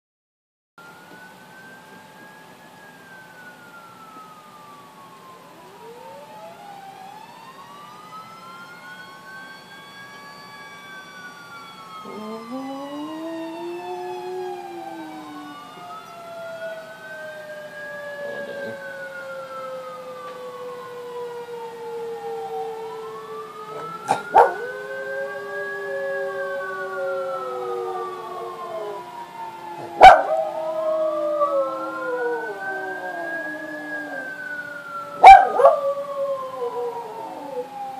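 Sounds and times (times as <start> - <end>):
emergency sirens wailing: 0.8 - 37.9
dog howling: 12.0 - 15.8, 18.2 - 19.0, 23.7 - 29.1, 29.7 - 37.9.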